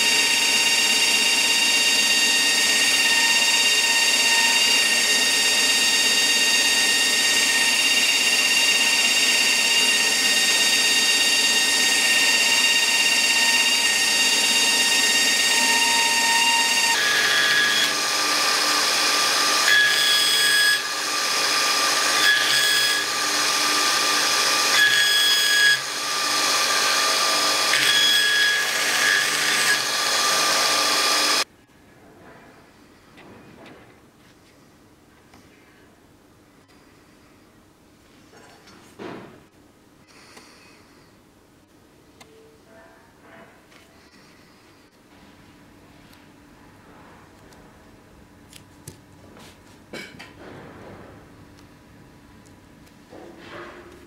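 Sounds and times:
belt grinder whining: 0.0 - 31.5.

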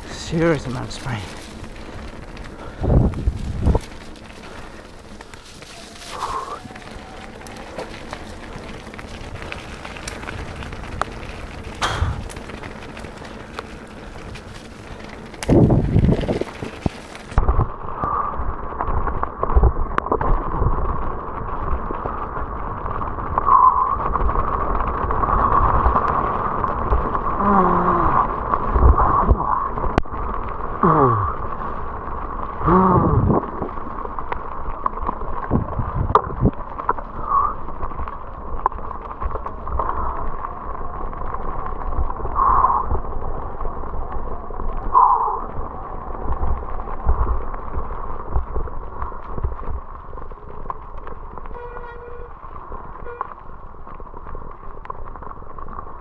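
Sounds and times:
bike tyres rattling over gravel: 0.0 - 56.0
wind on microphone: 2.6 - 4.7, 15.4 - 31.4, 32.6 - 33.9, 35.4 - 38.6.

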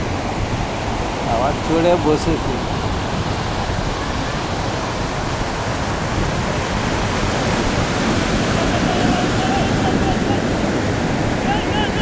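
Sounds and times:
surf breaking on beach: 0.0 - 12.0.

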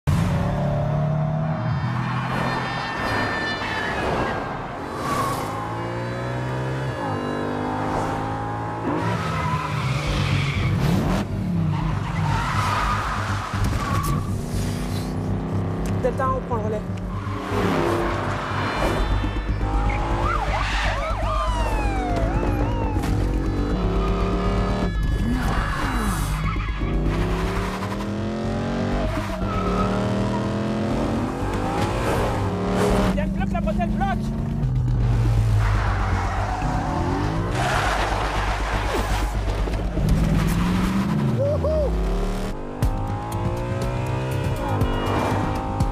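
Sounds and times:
car engines revving: 0.0 - 45.9
tyre skids: 35.5 - 41.8.

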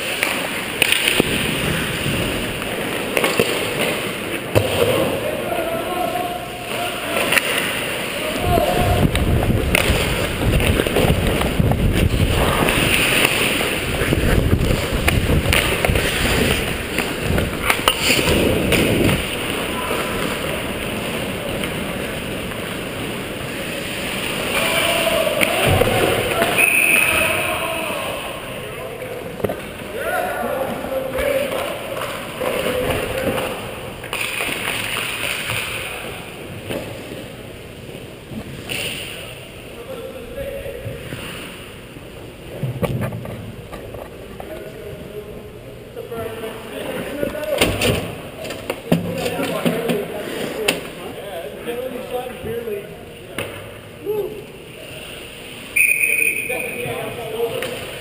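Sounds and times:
hockey stick and puck clicks: 0.0 - 1.4, 2.6 - 4.9, 7.2 - 7.8, 9.1 - 19.4, 31.5 - 35.9
wind rumbling on camera: 8.5 - 12.6
skate blades scraping ice: 9.4 - 24.9.

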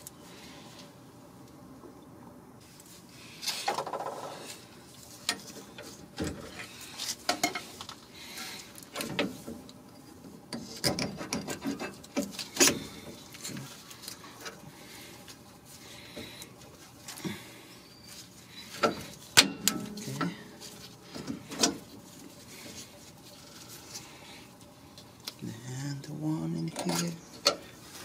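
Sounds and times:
metal clinks and scraping: 18.6 - 21.7.

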